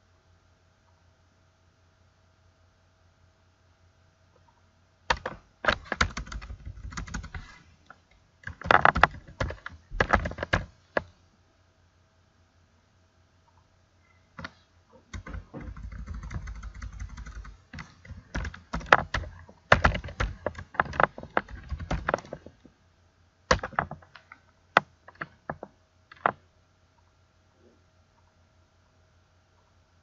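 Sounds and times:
keyboard key clicks: 5.1s - 7.5s.

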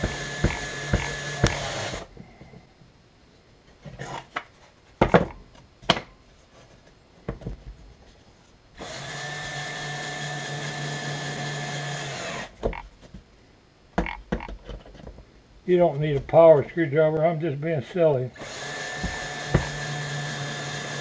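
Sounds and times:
sharp knocks and clicks: 0.0s - 1.7s, 14.0s - 15.2s
cordless drill driving screw into wood: 0.0s - 2.1s, 8.8s - 12.6s, 18.4s - 21.0s.

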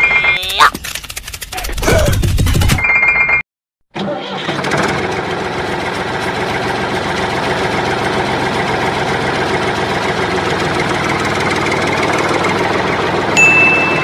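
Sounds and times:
tractor engine idling: 4.2s - 14.0s.

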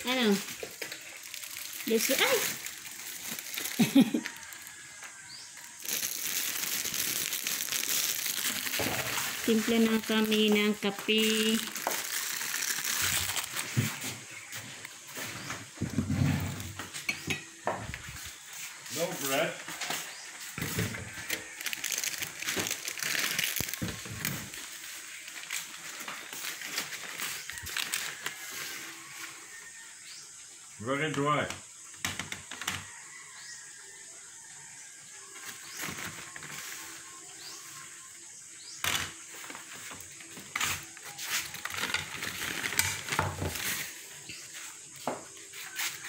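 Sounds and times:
plastic crinkling and rustling: 0.0s - 16.0s, 20.2s - 29.7s, 35.4s - 37.6s, 38.8s - 46.0s.

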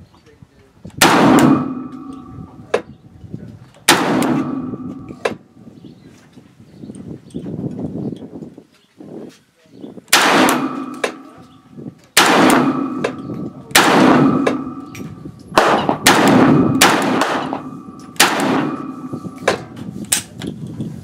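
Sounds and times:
echoing gunshots: 1.0s - 2.6s, 3.9s - 5.3s, 10.1s - 11.5s, 12.2s - 19.8s.

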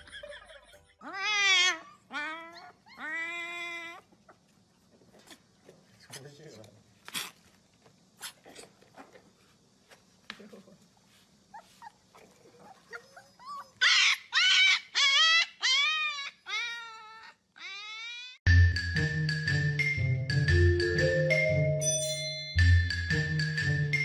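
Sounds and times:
puppy whimpering: 11.6s - 18.4s
puppy howling: 12.5s - 18.4s.

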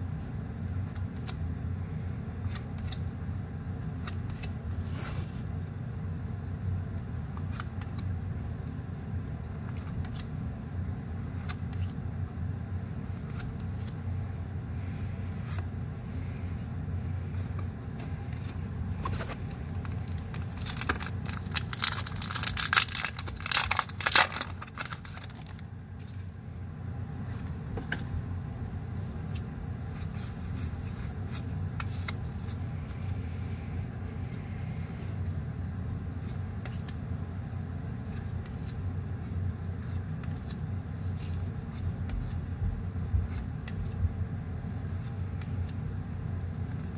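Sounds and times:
foil pack crinkling and tearing: 19.1s - 25.6s.

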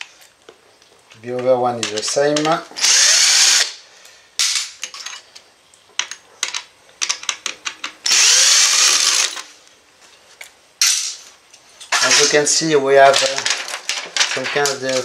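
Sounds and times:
cordless drill spinning: 2.8s - 3.7s, 8.1s - 9.4s.

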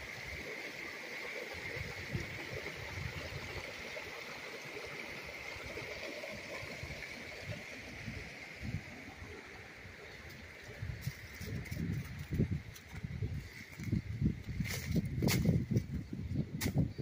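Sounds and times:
creek rushing: 0.0s - 13.0s.

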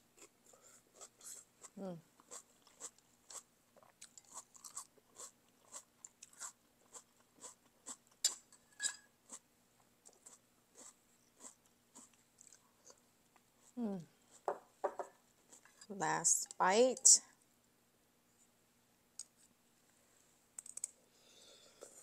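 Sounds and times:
close-miked wet chewing: 0.2s - 8.4s.

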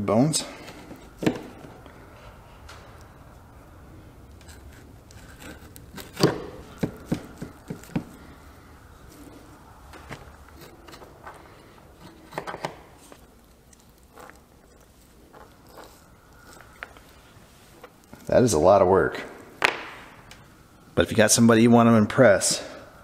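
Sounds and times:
knife scraping bones: 4.4s - 8.2s, 10.2s - 17.2s.

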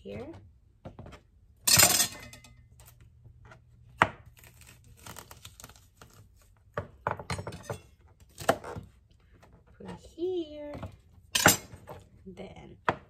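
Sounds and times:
knife chopping on plastic board: 3.9s - 4.3s.

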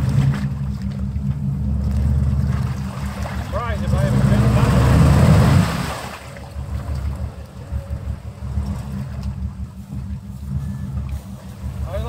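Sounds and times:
truck engine revving and idling: 0.0s - 12.0s.

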